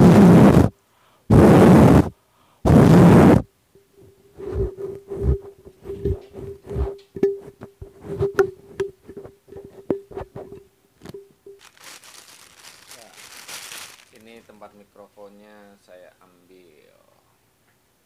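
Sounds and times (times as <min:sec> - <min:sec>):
microphone windscreen scraping: 0:04.4 - 0:07.0, 0:07.9 - 0:08.4.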